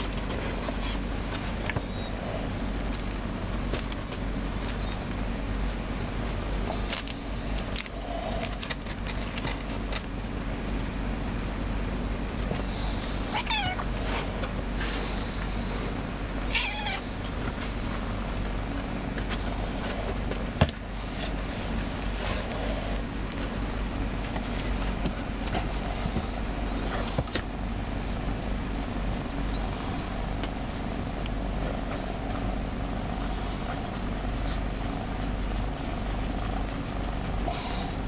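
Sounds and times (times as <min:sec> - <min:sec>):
rustles and clicks: 0:00.0 - 0:05.8, 0:06.6 - 0:10.2
steady low hum: 0:00.0 - 0:38.0
cat meowing: 0:13.3 - 0:13.9, 0:16.5 - 0:17.1.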